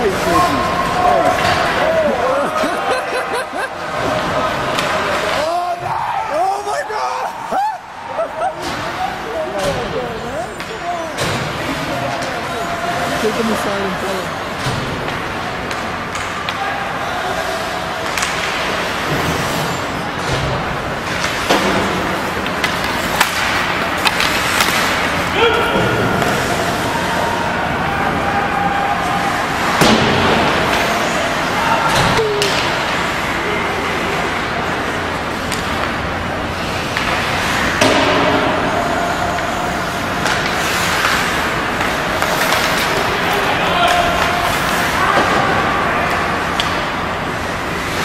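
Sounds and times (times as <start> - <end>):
hockey sticks hitting puck: 0.0 - 48.0
skates scraping on ice: 17.0 - 27.8, 38.5 - 48.0
stick hitting puck: 21.1 - 25.1.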